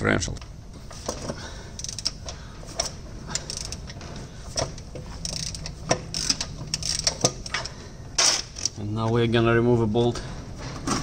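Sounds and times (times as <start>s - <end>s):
ratchet wrench clicking: 1.8s - 8.8s.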